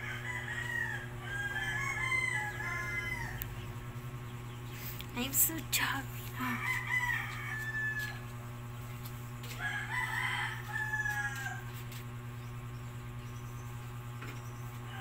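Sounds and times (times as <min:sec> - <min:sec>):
rooster crowing: 0:00.0 - 0:03.7, 0:06.4 - 0:08.5, 0:09.4 - 0:11.8, 0:14.8 - 0:15.0
steady low hum: 0:00.0 - 0:15.0.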